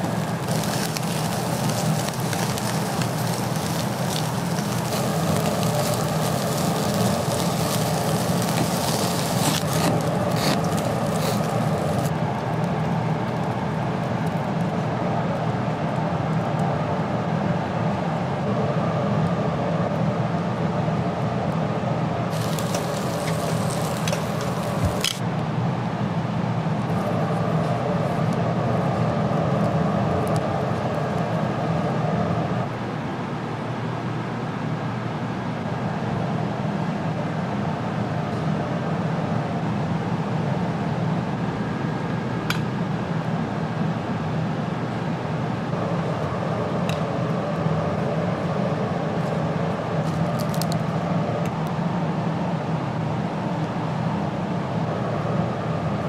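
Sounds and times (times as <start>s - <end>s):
hissing burst: 0.0s - 12.1s, 22.3s - 25.2s
low machine hum: 0.0s - 56.0s.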